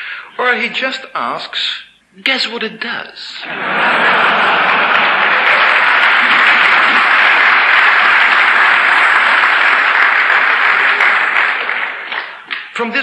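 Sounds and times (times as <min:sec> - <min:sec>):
lecture speech: 0:00.2 - 0:03.5, 0:12.6 - 0:13.0
audience applauding: 0:03.6 - 0:12.7.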